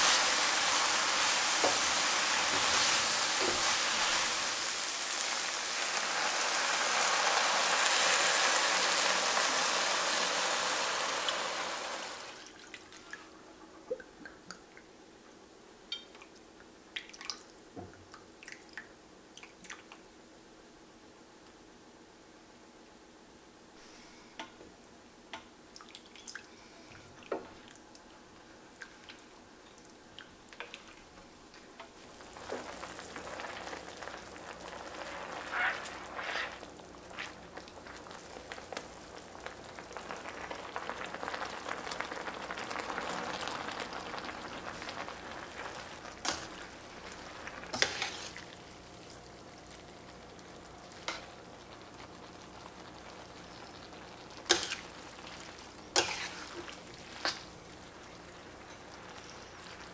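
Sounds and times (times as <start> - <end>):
sauce sizzling and bubbling: 0.0 - 13.5, 25.7 - 59.9
wooden spatula stirring: 47.7 - 48.5, 55.9 - 57.5.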